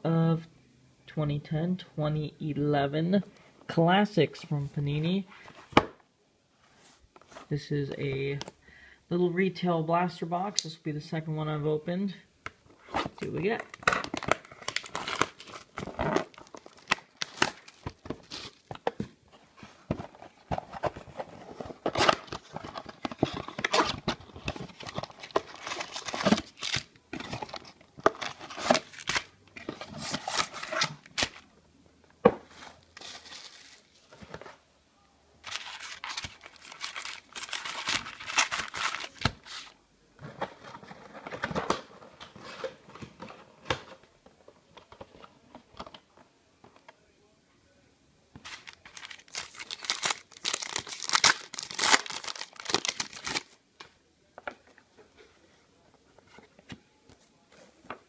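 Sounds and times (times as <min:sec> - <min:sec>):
packaging crinkling and tearing: 0:13.2 - 0:18.7, 0:20.8 - 0:31.4, 0:35.4 - 0:39.7, 0:48.4 - 0:53.6.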